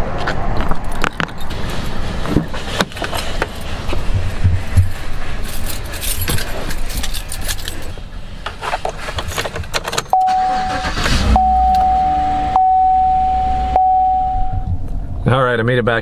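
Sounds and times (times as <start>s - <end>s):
keys jangling: 5.4s - 7.9s
dashboard chime tone: 10.2s - 10.7s, 11.4s - 14.7s
low rumble: 10.4s - 15.3s.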